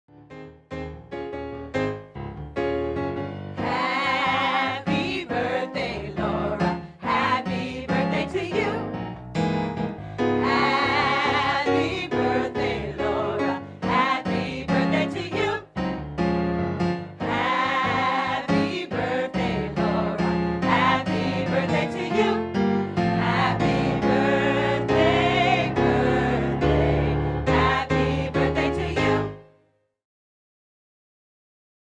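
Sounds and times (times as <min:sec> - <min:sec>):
low keyboard accompaniment: 0:00.3 - 0:29.5
choir singing: 0:03.6 - 0:09.0, 0:10.2 - 0:15.8, 0:17.2 - 0:29.4.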